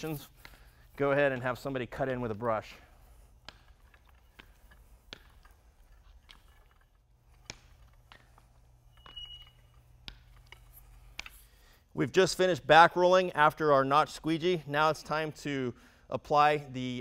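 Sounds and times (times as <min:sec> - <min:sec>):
paint roller clicking and crackling: 0:00.0 - 0:11.8
low steady hum: 0:00.0 - 0:17.0
high squeak: 0:08.9 - 0:09.7.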